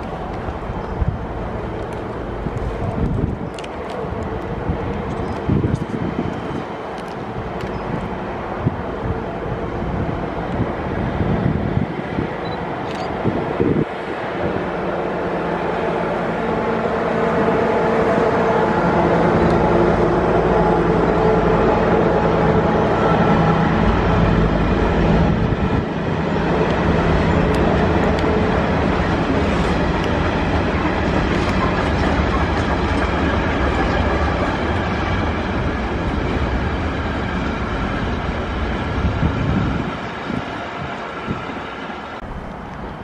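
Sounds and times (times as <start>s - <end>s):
train wheels clattering on rails: 25.8s - 42.2s.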